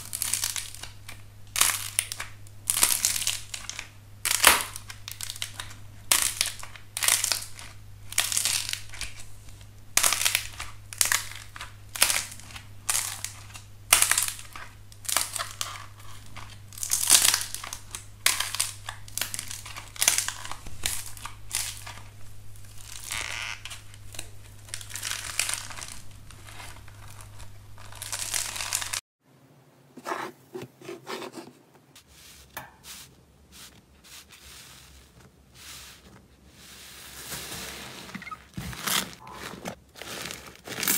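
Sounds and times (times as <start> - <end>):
slime squishing: 0.0 - 29.0
sand crunching: 32.0 - 38.0.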